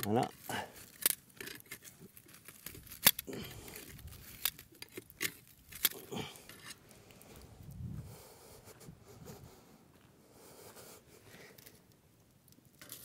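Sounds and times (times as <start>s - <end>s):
tongs scraping: 0.0s - 6.8s.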